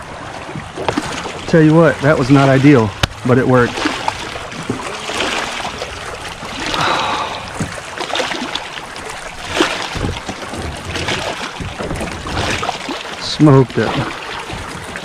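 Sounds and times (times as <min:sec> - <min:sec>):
water lapping against kayak hull: 0:00.0 - 0:15.0.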